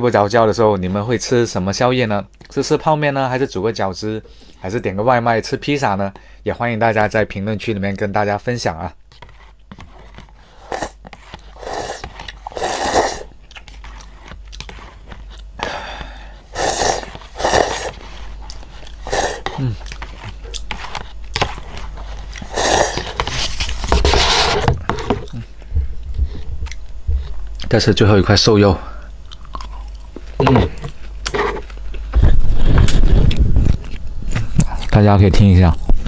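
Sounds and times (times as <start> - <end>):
person slurping noodles: 10.6 - 13.3, 16.5 - 18.0, 18.9 - 19.9, 22.4 - 23.4
chewing: 11.3 - 15.6, 16.8 - 23.1, 29.2 - 32.1.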